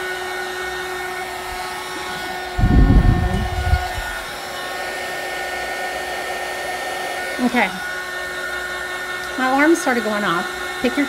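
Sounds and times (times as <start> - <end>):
heat gun blowing with whine: 0.0 - 11.0
low rumble: 2.6 - 4.2.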